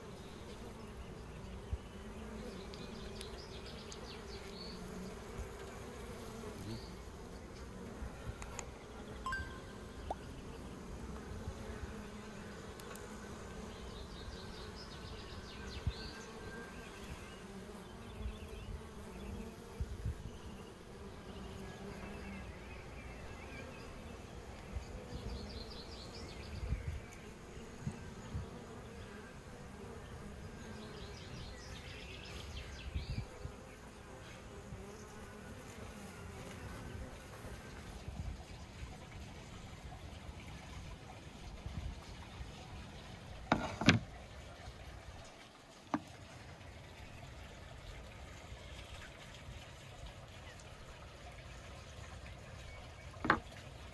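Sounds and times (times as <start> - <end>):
bees buzzing: 0.0 - 40.2.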